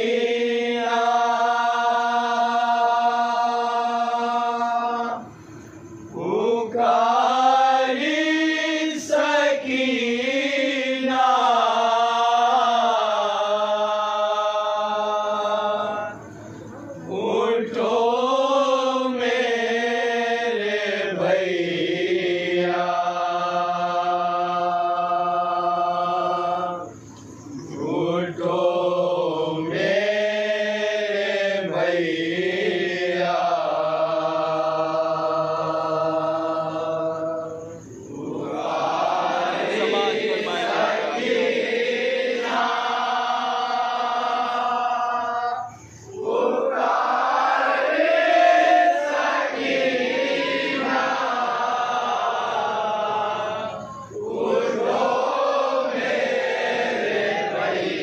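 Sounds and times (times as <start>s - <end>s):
man chanting a lament: 39.4s - 41.8s.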